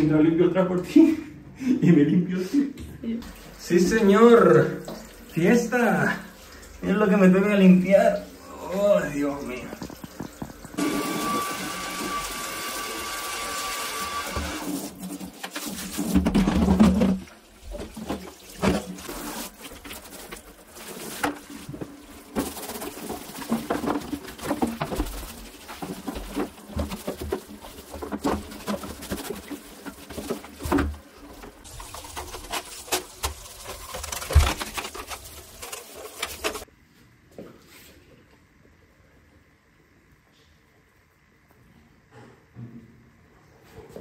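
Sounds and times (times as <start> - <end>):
shower water splashing into plastic: 3.2 - 36.7
plastic and metal grille rattling: 22.3 - 36.6.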